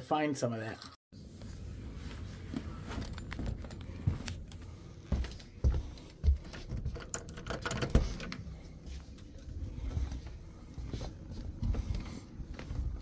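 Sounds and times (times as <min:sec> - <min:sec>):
footsteps thumping: 0:02.5 - 0:07.0
small clicks and rattles: 0:06.5 - 0:08.4.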